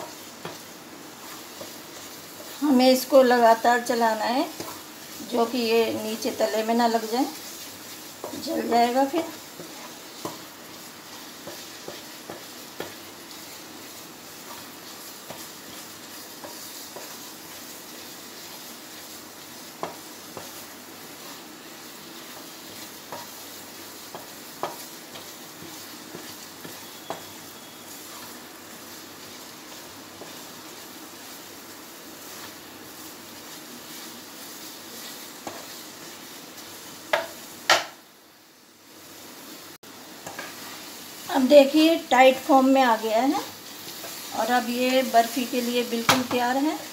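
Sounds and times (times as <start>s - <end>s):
wooden spatula stirring mixture: 0.0s - 37.3s
low sizzle: 0.0s - 46.9s.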